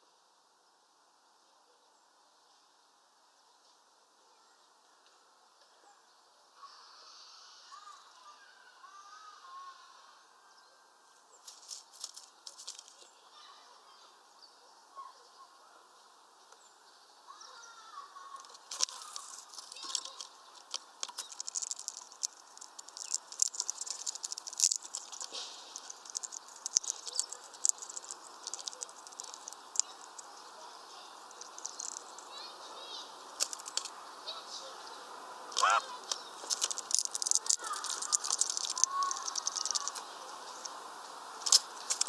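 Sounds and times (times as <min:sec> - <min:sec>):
faint bird calls: 0:04.2 - 0:11.5, 0:12.9 - 0:36.5
birds cracking seeds: 0:11.4 - 0:13.2, 0:17.3 - 0:42.0.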